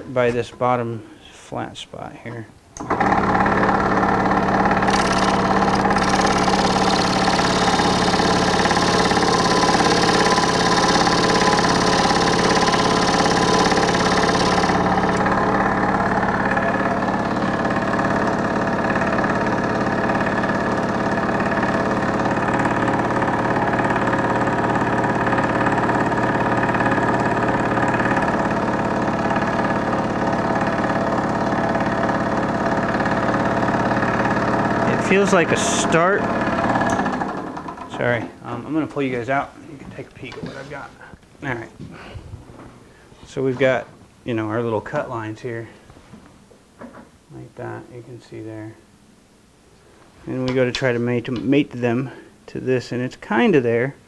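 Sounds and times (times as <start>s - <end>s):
scroll saw running: 2.8s - 38.0s
saw blade cutting wood: 4.6s - 15.2s.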